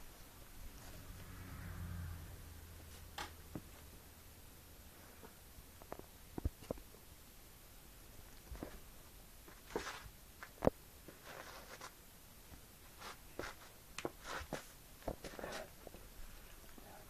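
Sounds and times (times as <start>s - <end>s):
puppy scratching carpet: 11.1s - 12.0s.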